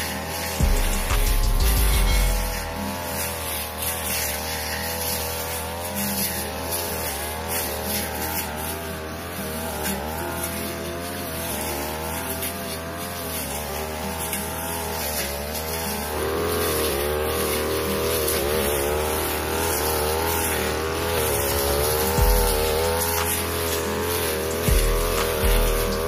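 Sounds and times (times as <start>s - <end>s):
brush cutter engine high revs: 0.0s - 26.0s.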